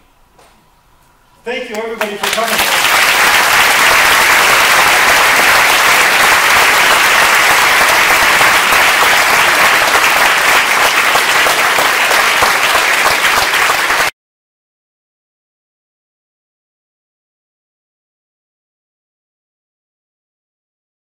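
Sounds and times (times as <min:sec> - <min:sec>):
audience applauding: 0:02.0 - 0:14.1.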